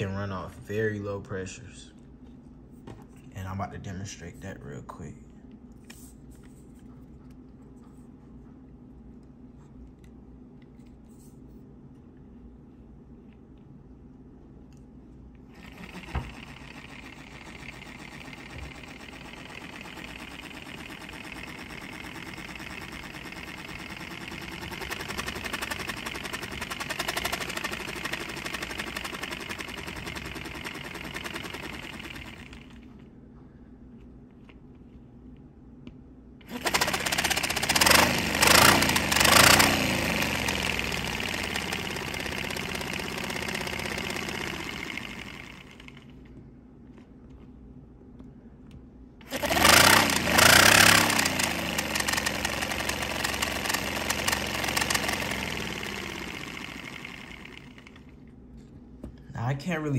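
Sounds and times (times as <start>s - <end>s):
small air engine rattling: 15.5s - 32.9s, 36.4s - 46.3s, 49.2s - 58.2s.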